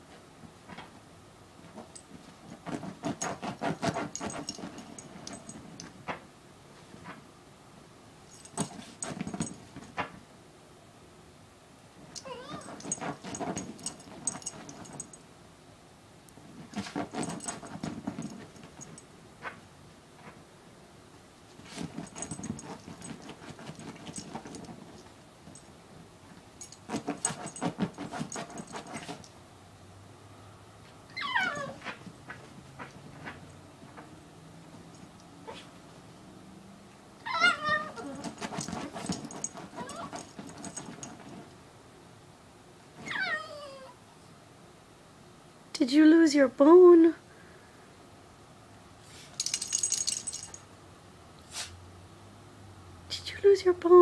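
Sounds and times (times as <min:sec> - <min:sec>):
dog scratching upholstery: 0:01.7 - 0:05.8, 0:12.3 - 0:15.1, 0:16.4 - 0:19.6, 0:21.6 - 0:25.1, 0:26.6 - 0:29.3, 0:37.4 - 0:41.5
dog tags jingling: 0:03.0 - 0:05.9, 0:12.2 - 0:15.2, 0:16.7 - 0:19.0, 0:21.7 - 0:25.7, 0:26.6 - 0:29.3, 0:37.7 - 0:41.4, 0:49.4 - 0:50.7.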